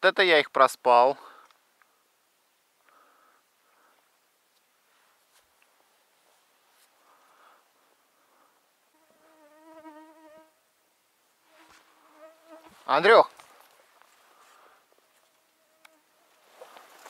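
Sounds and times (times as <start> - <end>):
insect buzzing: 8.9 - 10.6, 11.4 - 12.9, 15.3 - 16.4.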